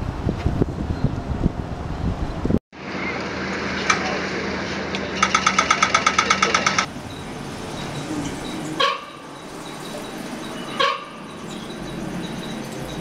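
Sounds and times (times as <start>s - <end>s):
crossing signal ticking: 5.1s - 13.0s.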